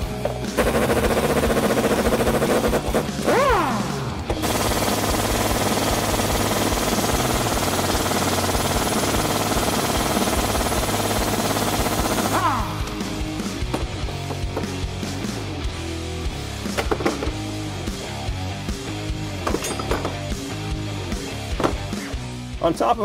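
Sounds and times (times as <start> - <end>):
impact wrench hammering: 19.4 - 20.3.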